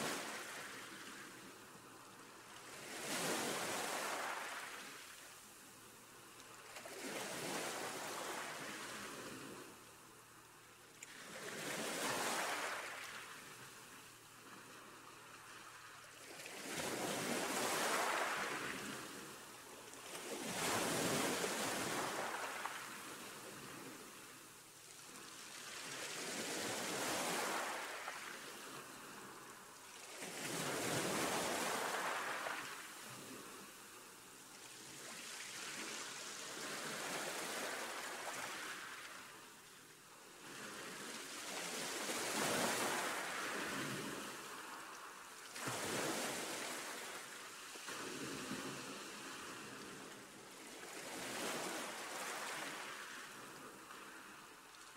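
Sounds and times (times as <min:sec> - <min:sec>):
ocean surf washing in: 0:30.7 - 0:32.9.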